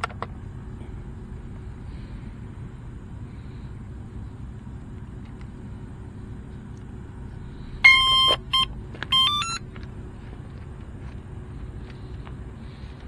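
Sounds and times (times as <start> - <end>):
electronic motor beeps: 7.8 - 9.6.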